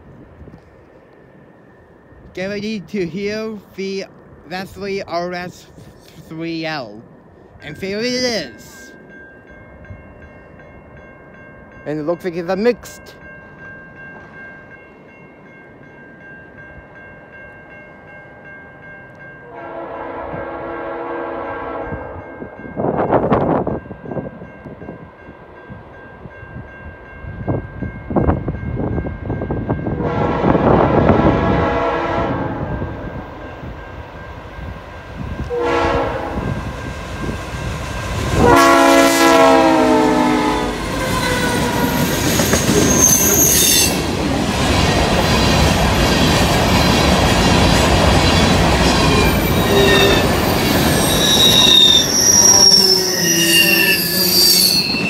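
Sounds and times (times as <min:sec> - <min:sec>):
train rumbling past: 0:00.0 - 0:55.0
locomotive air horn blasts: 0:19.5 - 0:22.2, 0:30.0 - 0:32.8, 0:35.5 - 0:36.6, 0:38.3 - 0:41.6.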